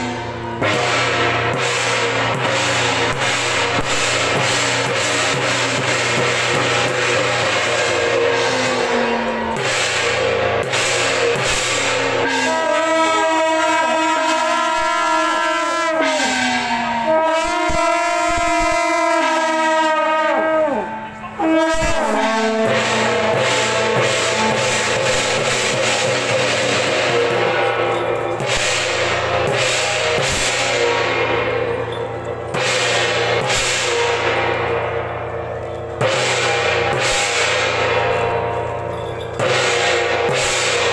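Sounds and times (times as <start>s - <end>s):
held horn-like tones: 0.0s - 40.9s
loud music with drums and cymbals: 0.0s - 40.9s
sustained ringing tones: 34.0s - 40.9s.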